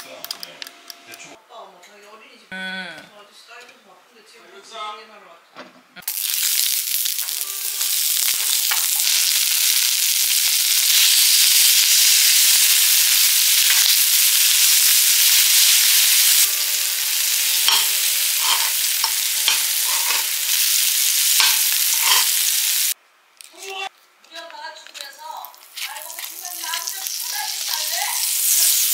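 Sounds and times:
food sizzling in a hot pan: 6.0 - 23.0, 25.5 - 28.9.

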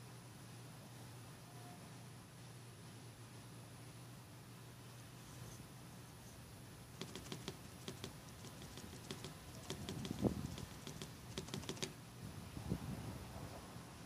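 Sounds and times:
soft knock: 7.0 - 11.9
sponge dauber tapping paint: 7.0 - 12.0.

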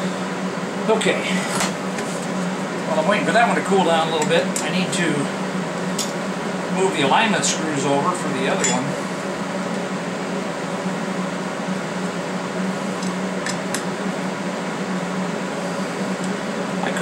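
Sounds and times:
fan hum: 0.0 - 17.0.

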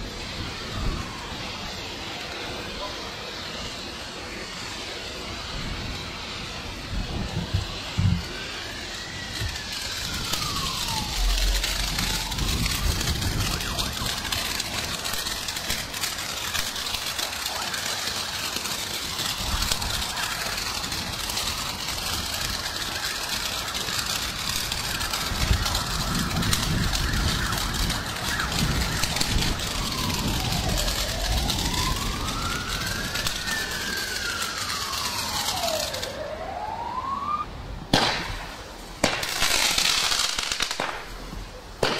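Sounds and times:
firework fountain hissing crackle: 0.0 - 41.9
siren-like wail: 0.0 - 41.9.

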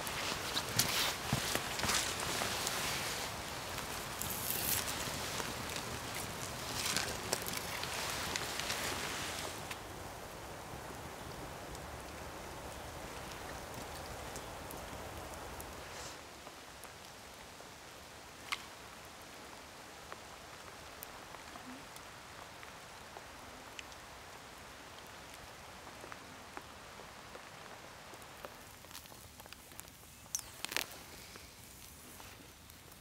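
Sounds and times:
fire snapping: 0.0 - 10.2, 10.8 - 17.2, 24.9 - 33.0
fire embers crackling: 0.0 - 33.0.

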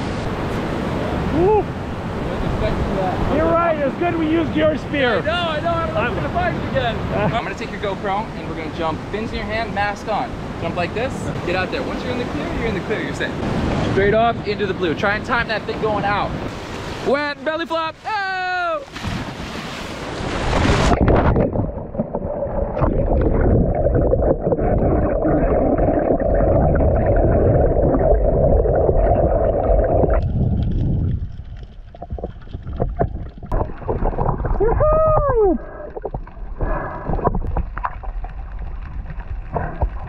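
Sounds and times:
loud splash into water: 18.9 - 21.8
underwater rush of bubbles: 20.1 - 40.0.

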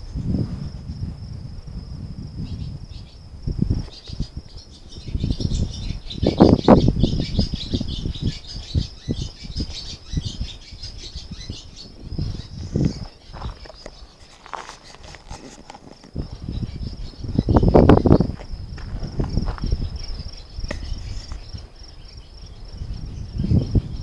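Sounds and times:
crickets trilling: 0.0 - 24.0
camera handling rustles and thumps: 12.8 - 16.2.

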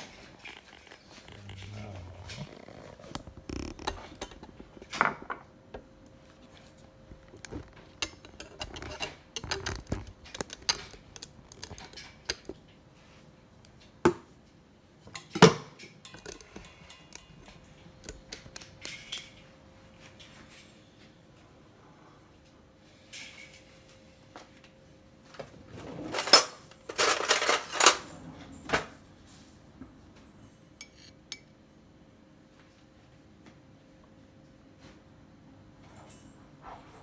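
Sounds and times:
dishes and utensils clicking: 7.1 - 12.6, 15.1 - 19.4, 30.8 - 31.5.

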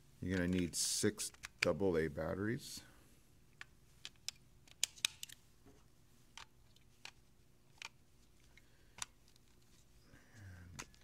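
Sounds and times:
batteries clicking into compartment: 3.6 - 5.4, 6.3 - 9.7.

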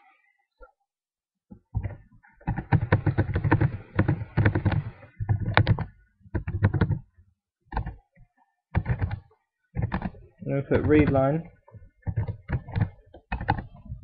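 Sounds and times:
computer keyboard typing: 1.8 - 7.1, 7.7 - 8.0, 8.7 - 11.4, 12.0 - 14.0.

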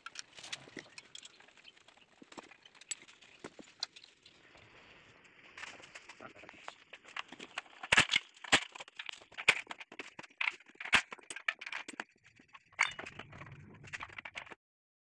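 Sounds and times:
metal tools clinking: 12.8 - 13.3.

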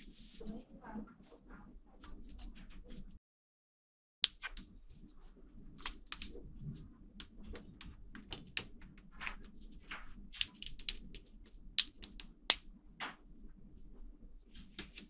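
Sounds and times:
magnetic balls clicking together: 5.8 - 6.5, 7.2 - 12.7.

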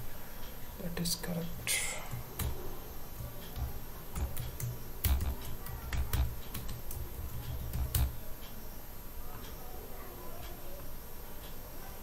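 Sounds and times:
keyboard typing: 1.5 - 8.3.

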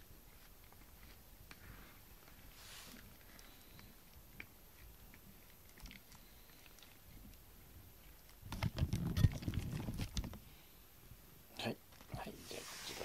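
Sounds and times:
brush stroking cat fur: 0.0 - 3.7, 12.2 - 13.0
rustling and knocking on microphone: 8.4 - 10.4.

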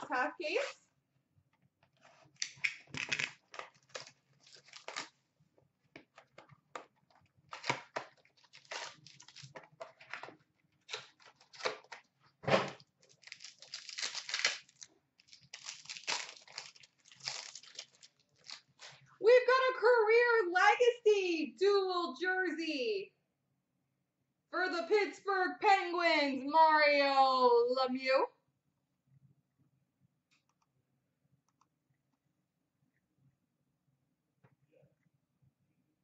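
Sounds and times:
wrapping crinkling: 2.1 - 5.2, 6.1 - 12.1, 12.7 - 19.1.

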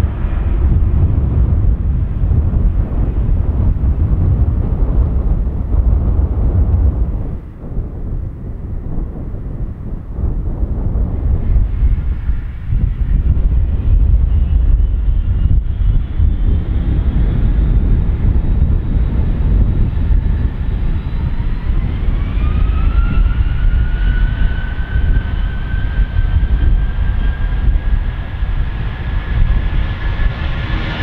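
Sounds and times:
jet airliner taking off: 0.0 - 31.0.

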